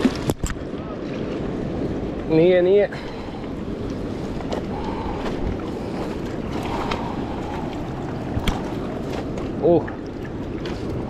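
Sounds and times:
water lapping against rocks: 0.0 - 11.0
wind on microphone: 3.3 - 11.0.

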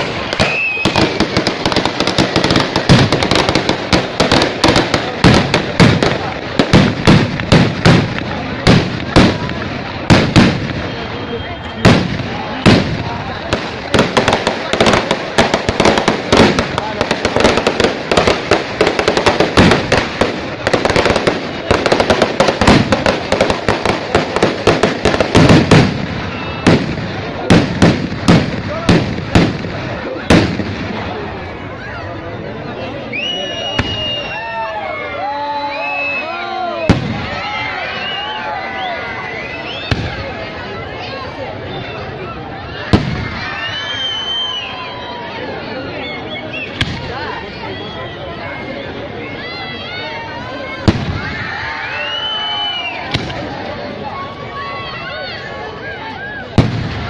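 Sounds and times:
firecrackers banging: 0.0 - 31.7, 36.7 - 38.3, 39.5 - 41.4, 42.8 - 44.7, 46.6 - 47.7, 50.7 - 54.3, 56.4 - 57.0.

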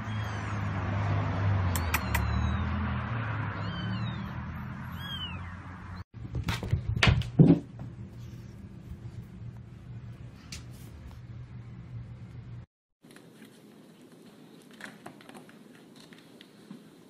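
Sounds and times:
kittens mewing: 0.0 - 0.8, 1.8 - 2.7.

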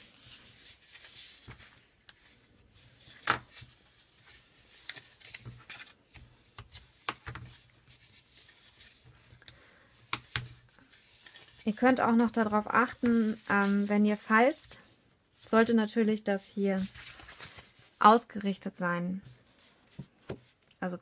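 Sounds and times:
paper rustling and crackling: 0.0 - 14.6, 16.7 - 18.0.

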